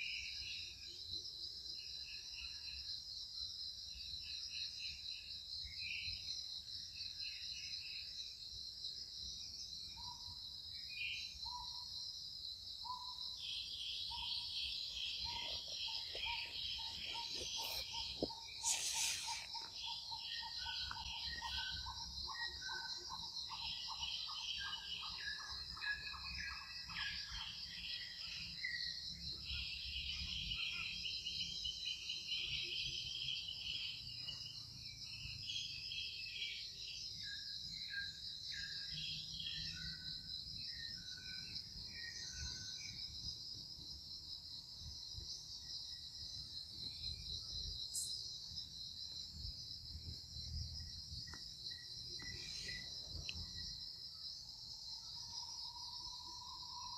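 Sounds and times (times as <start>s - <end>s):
insects chorus: 0.0s - 56.9s
birds calling: 14.0s - 21.8s
quick repeated bird notes: 15.2s - 20.2s.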